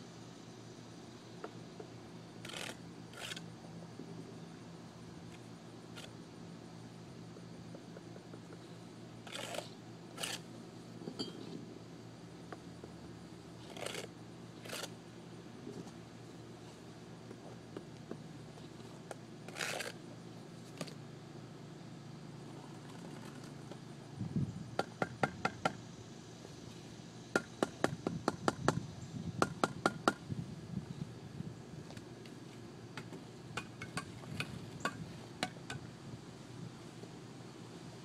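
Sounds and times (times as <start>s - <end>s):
trowel scrape: 2.4s - 3.5s, 9.3s - 10.5s, 13.6s - 15.0s, 19.5s - 20.0s.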